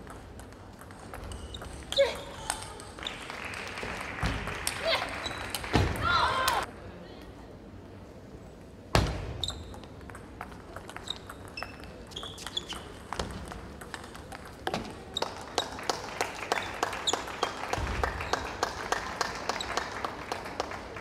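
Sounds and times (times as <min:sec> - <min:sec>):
shoes squeaking on floor: 0:01.2 - 0:02.1, 0:09.4 - 0:10.0, 0:11.0 - 0:13.4, 0:14.7 - 0:15.7.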